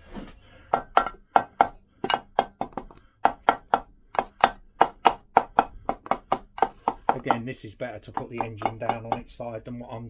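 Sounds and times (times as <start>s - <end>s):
wooden handle tapping on metal: 0.8s - 7.5s, 8.1s - 9.4s.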